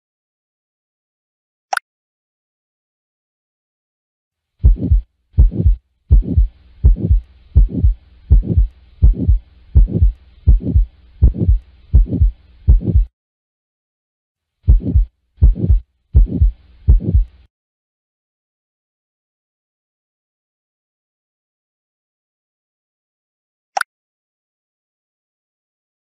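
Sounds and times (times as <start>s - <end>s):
faint heart murmur hiss: 4.6s - 13.1s, 14.7s - 17.4s
heartbeat: 4.6s - 13.1s, 14.7s - 17.4s.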